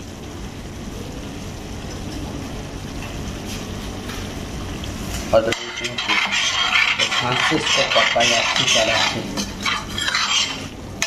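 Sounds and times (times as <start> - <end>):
gravy sizzling in a pan: 1.3 - 11.0
steel spoon stirring and scraping: 5.4 - 10.8.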